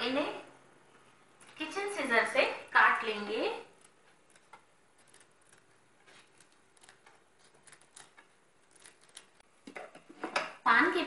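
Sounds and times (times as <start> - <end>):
scissors snipping leaves: 3.8 - 9.3.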